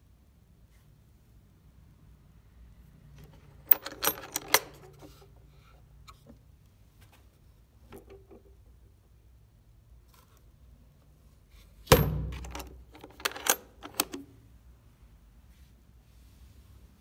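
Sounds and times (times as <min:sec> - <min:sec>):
metal latch clacking: 0:03.7 - 0:05.0, 0:11.9 - 0:14.3
case lid knocks: 0:11.9 - 0:12.6.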